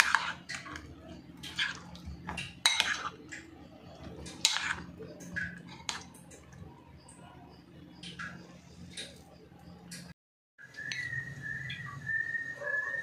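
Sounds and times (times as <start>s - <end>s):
spoon clinking and scraping glass bowl: 0.0s - 6.6s
wet batter squelches: 0.0s - 10.0s.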